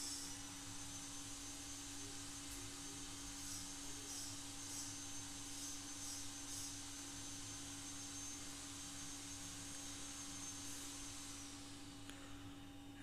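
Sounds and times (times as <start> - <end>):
low electrical hum: 0.0 - 13.0
thin high whine: 0.0 - 13.0.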